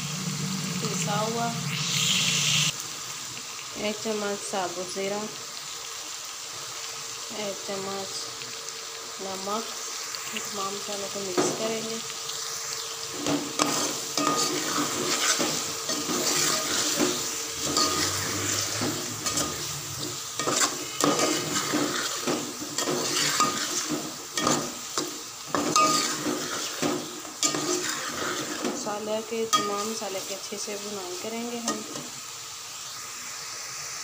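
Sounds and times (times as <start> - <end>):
food sizzling in oil: 0.0 - 34.0
metal spoon scraping a pot: 13.6 - 28.8.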